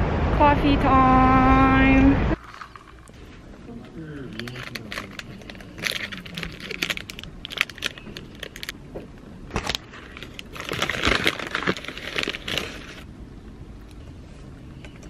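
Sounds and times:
packaging crinkling: 0:04.2 - 0:08.8, 0:09.5 - 0:13.1.

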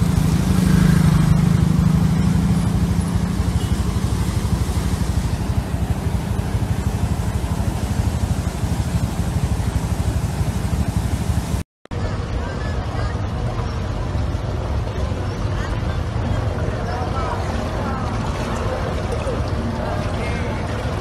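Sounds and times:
floodwater rushing over weir: 0:00.0 - 0:21.0.

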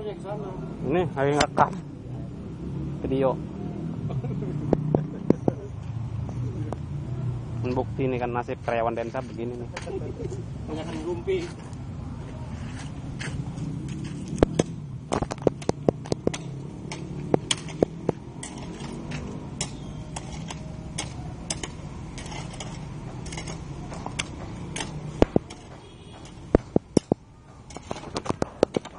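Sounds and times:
hoe chopping stony dirt: 0:13.3 - 0:28.9.

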